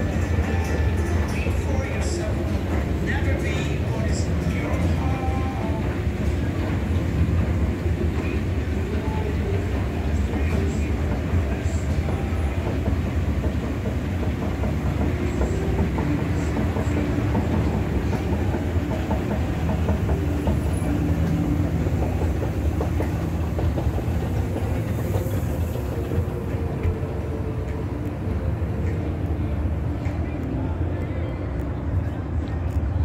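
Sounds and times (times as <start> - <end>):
escalator mechanical rumble: 0.0 - 33.0.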